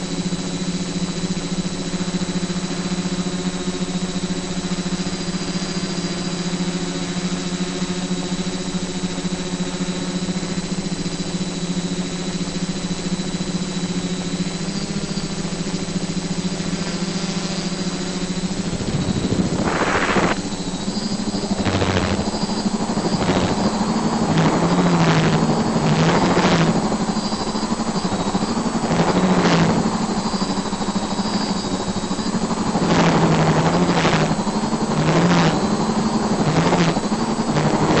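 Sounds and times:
drone propellers humming: 0.0s - 38.0s
short rushes of noise: 18.6s - 20.4s.

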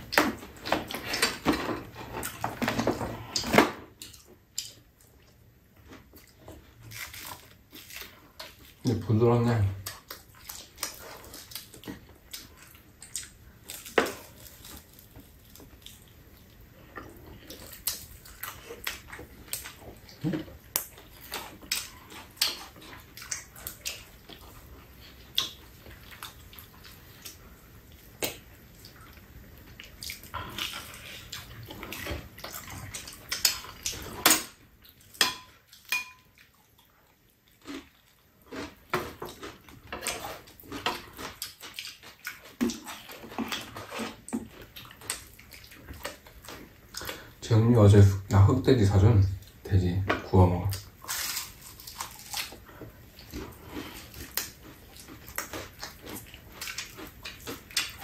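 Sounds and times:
wet chewing: 9.8s - 47.4s, 50.7s - 58.0s.

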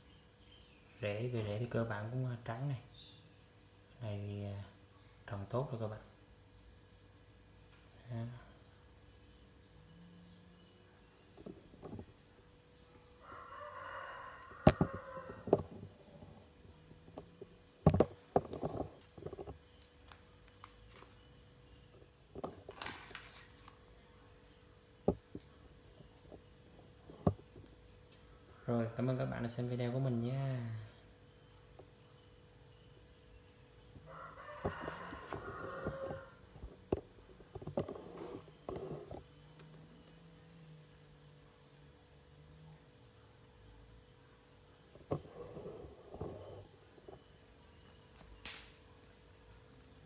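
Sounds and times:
rooster crowing: 13.2s - 15.8s, 34.1s - 36.5s.

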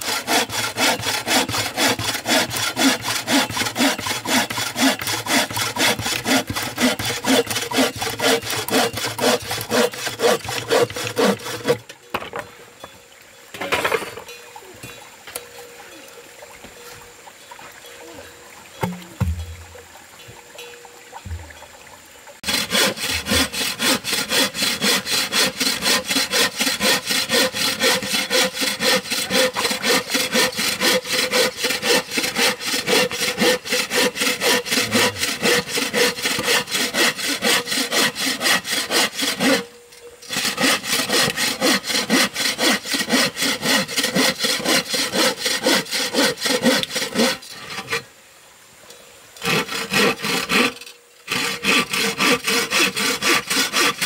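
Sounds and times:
hand saw cutting wood: 0.0s - 12.4s, 22.4s - 48.1s, 49.4s - 54.0s.

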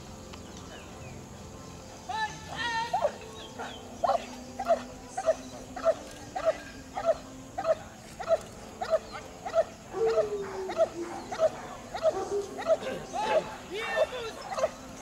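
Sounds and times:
dog barking: 3.0s - 13.4s, 14.4s - 14.8s.

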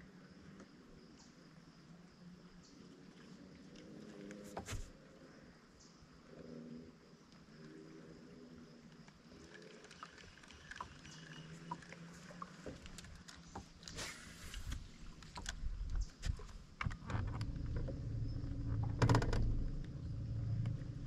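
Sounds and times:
boat motor hum: 10.6s - 21.0s.

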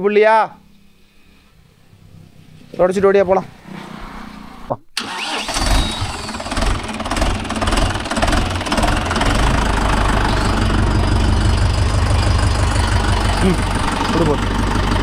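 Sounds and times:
tractor diesel engine starting and idling: 5.0s - 15.0s.

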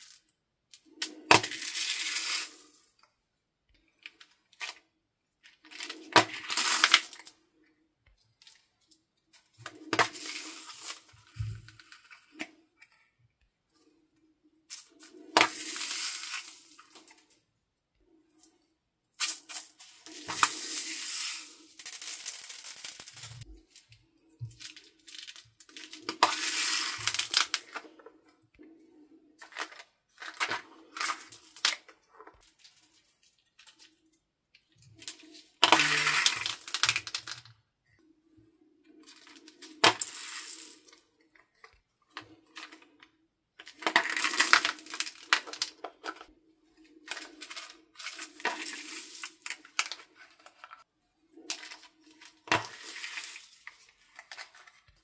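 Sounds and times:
beads clattering onto slime: 20.4s - 23.4s.

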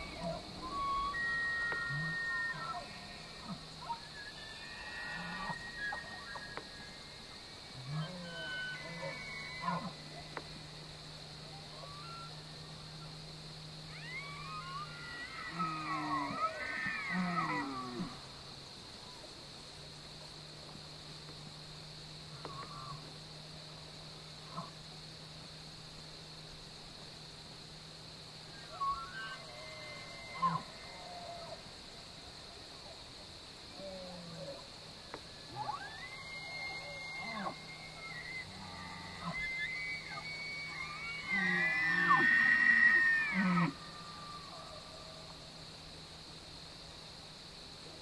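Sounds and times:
elk bugling: 0.0s - 6.9s, 7.8s - 10.4s, 28.6s - 31.6s, 35.5s - 44.8s.

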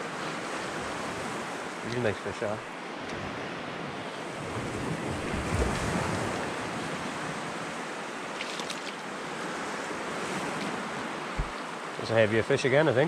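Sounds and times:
waves breaking on beach: 0.0s - 13.0s
wind on microphone: 3.1s - 7.7s, 9.4s - 11.7s.

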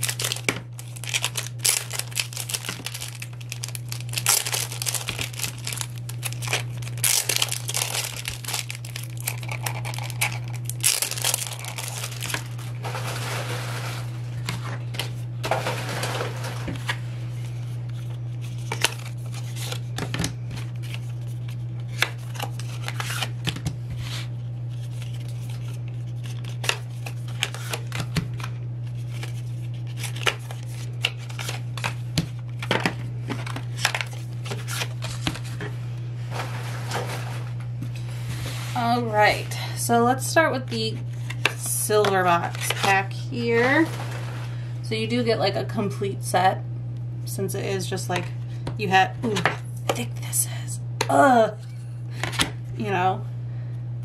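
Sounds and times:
cellophane wrappers tearing: 0.0s - 14.1s, 18.0s - 19.9s, 20.6s - 23.4s, 24.7s - 32.7s, 33.4s - 35.5s
steady low hum: 0.0s - 54.0s.

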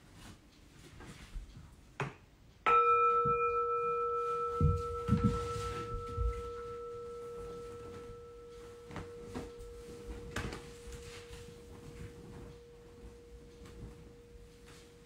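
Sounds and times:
singing bowl ringing: 2.6s - 15.0s
soft low thumps: 4.5s - 14.6s.

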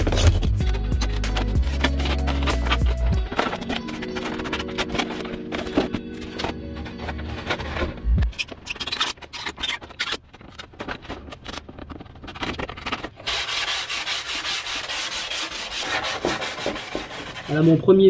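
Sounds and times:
foam sheets rubbing and scraping: 0.0s - 18.0s
sanding block rasping on foam: 13.2s - 18.0s.

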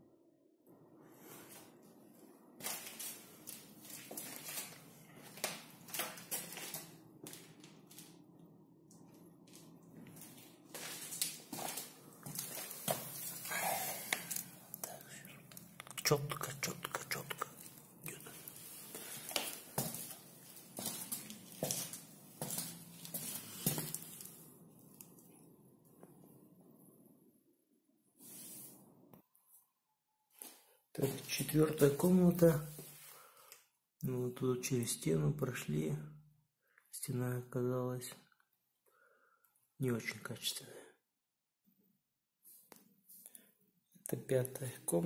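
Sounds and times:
footsteps crunching on grit: 2.6s - 8.1s, 9.5s - 14.4s, 18.3s - 24.4s
footsteps on laminate floor: 18.9s - 24.2s.

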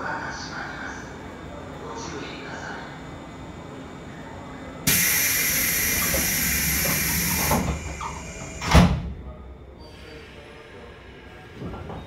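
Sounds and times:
compressed air hissing: 4.9s - 8.6s.

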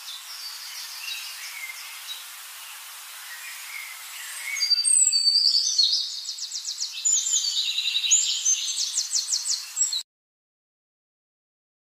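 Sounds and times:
faint background hiss: 0.0s - 10.0s
bird chirping and trilling: 3.3s - 10.0s.

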